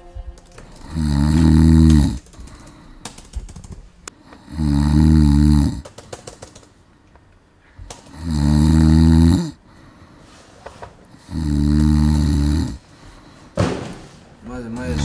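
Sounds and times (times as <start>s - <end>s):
quiet breathing: 0.0s - 14.4s
person snoring loudly: 0.7s - 2.2s, 4.3s - 5.8s, 8.0s - 9.6s, 11.2s - 12.8s.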